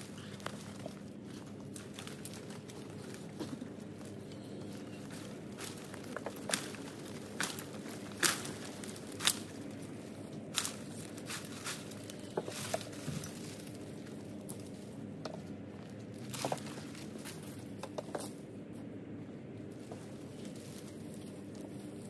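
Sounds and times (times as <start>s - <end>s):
rustling vine growth: 0.0s - 18.4s, 19.6s - 22.0s.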